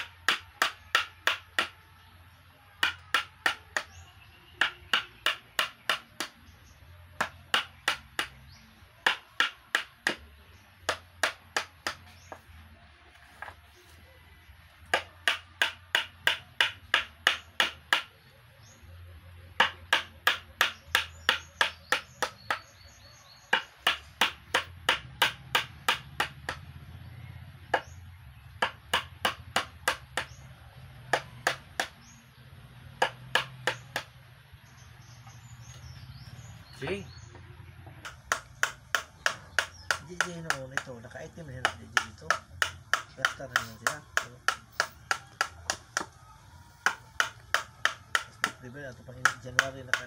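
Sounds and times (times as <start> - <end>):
mallet striking chisel on wood: 0.0 - 1.8, 2.8 - 12.4, 14.9 - 18.7, 19.6 - 26.6, 27.7 - 30.4, 31.1 - 32.2, 33.0 - 34.2, 37.8 - 46.2, 46.8 - 50.0.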